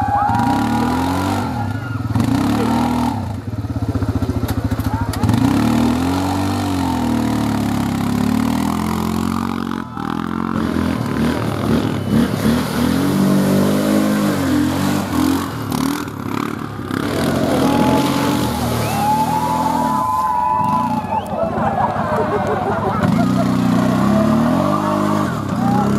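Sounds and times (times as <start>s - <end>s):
quad bike engine revving: 0.0s - 25.9s.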